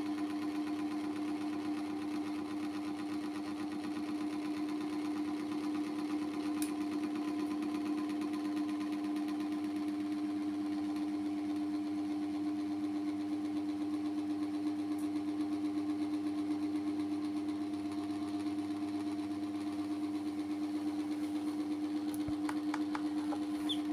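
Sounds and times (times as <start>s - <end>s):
small motor humming: 15.0s - 23.9s.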